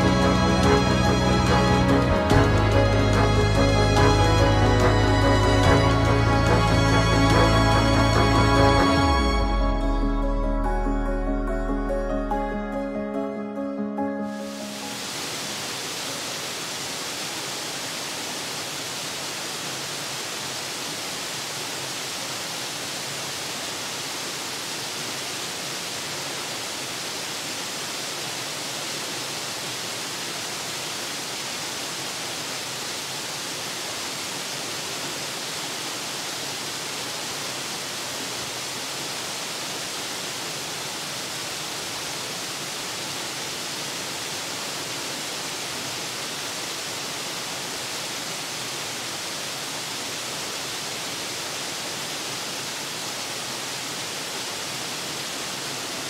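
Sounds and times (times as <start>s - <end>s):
waterfall rushing into pool: 14.4s - 56.0s.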